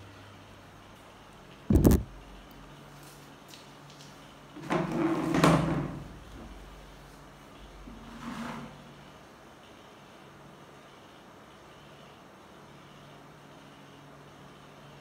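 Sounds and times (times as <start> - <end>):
person settling into seat: 1.7 - 2.1.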